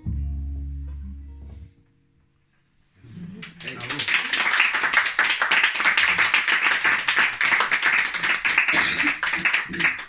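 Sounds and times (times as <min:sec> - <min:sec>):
audience clapping: 0:03.3 - 0:10.0.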